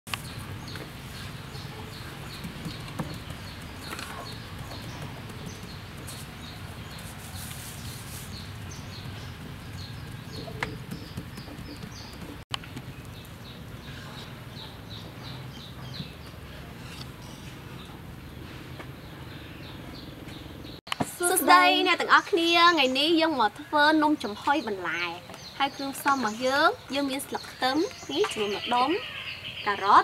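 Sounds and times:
bird chirping: 0.1s - 20.8s
dough knocking on wooden board: 2.4s - 6.1s, 9.0s - 12.4s.

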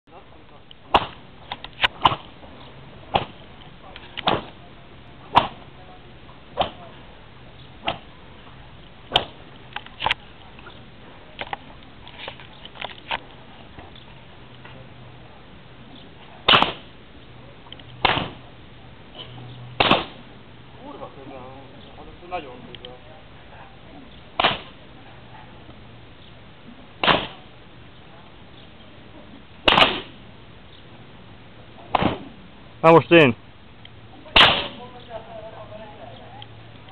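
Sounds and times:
whip cracking: 0.9s - 1.2s, 4.2s - 4.6s, 9.1s - 9.4s, 16.5s - 16.9s, 18.0s - 18.4s, 19.8s - 20.2s, 24.4s - 24.8s, 27.0s - 27.4s, 29.6s - 30.2s, 31.9s - 32.3s, 34.4s - 34.8s.

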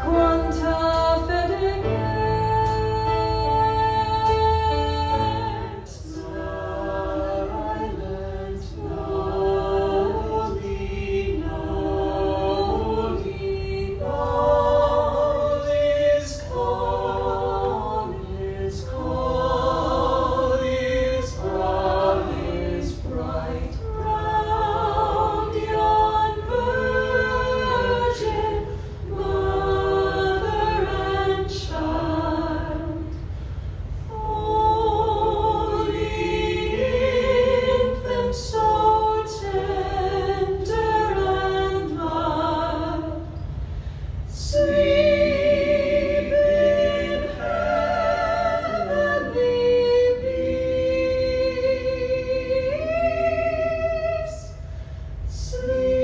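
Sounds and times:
choir singing in harmony: 0.0s - 56.0s.

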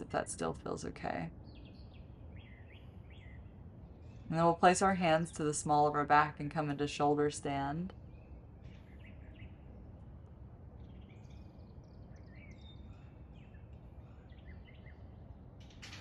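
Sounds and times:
low background noise: 0.0s - 16.0s
bird chirps: 10.8s - 15.4s.

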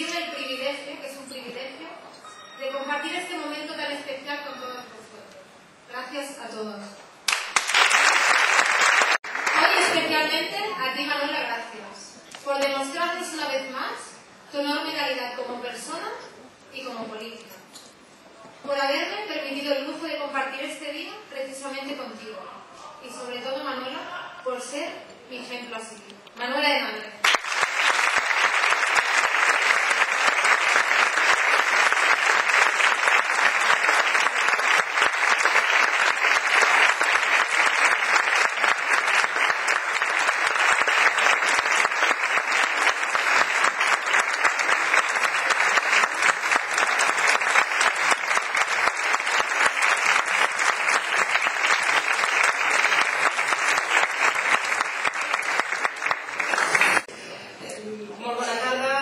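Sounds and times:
audience applauding: 7.2s - 10.3s, 27.2s - 57.1s.

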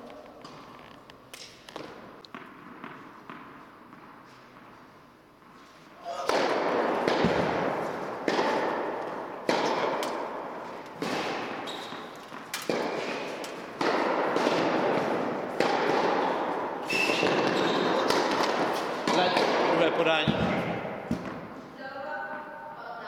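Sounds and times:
tennis ball hits echoing: 6.0s - 21.7s.

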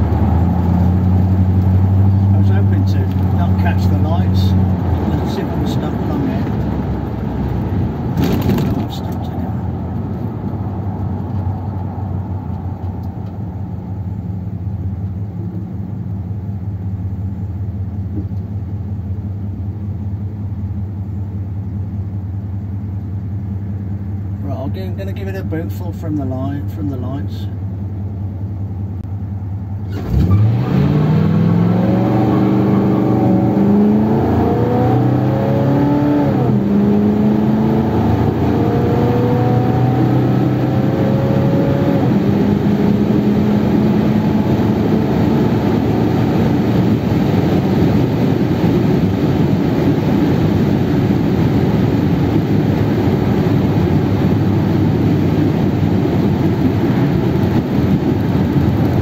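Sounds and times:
car engine revving: 0.0s - 14.8s, 29.8s - 59.0s
road noise: 0.0s - 59.0s.

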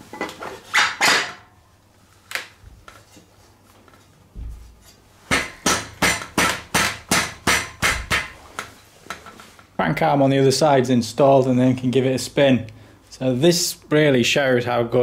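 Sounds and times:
sharp tool knocks: 5.3s - 8.4s.

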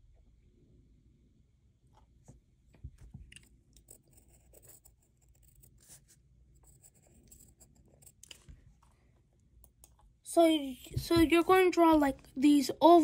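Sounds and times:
pencil scratching on paper: 3.8s - 9.0s.

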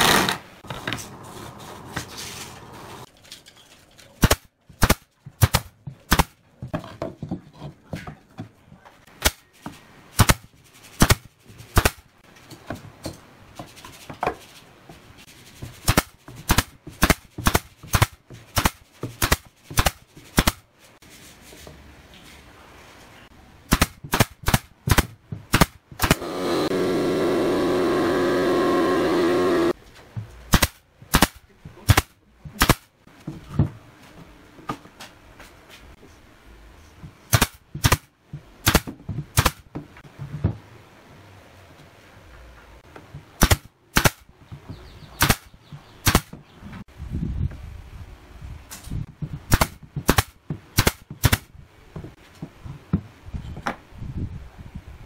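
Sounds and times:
brad nailer firing: 0.0s - 0.6s, 4.2s - 6.4s, 10.2s - 12.0s, 15.8s - 20.6s, 23.7s - 29.8s, 30.5s - 32.9s, 37.3s - 39.7s, 43.4s - 44.3s, 45.2s - 46.4s, 49.5s - 51.5s
pitched machine hum: 26.2s - 29.8s.

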